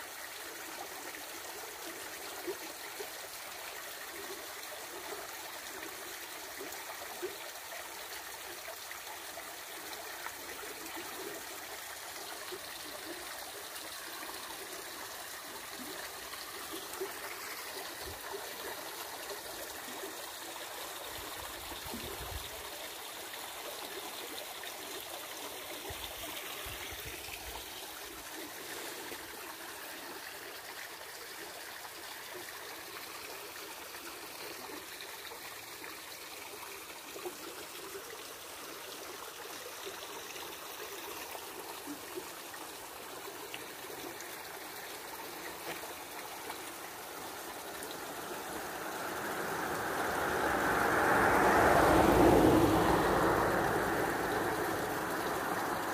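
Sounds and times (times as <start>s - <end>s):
river water rushing over rapids: 42.7s - 55.9s.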